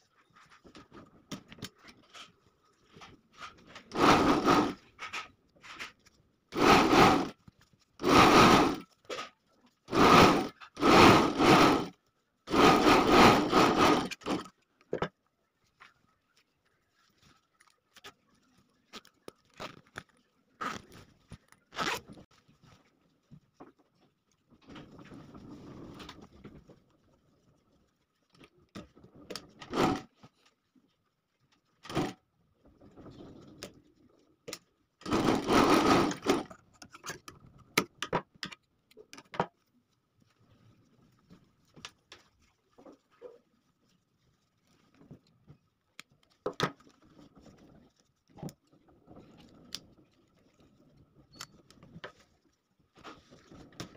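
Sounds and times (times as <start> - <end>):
industrial sewing machine stitching: 3.9 - 4.8, 6.6 - 7.3, 8.0 - 8.8, 9.9 - 11.9, 12.5 - 14.5, 29.7 - 30.0, 35.0 - 36.5.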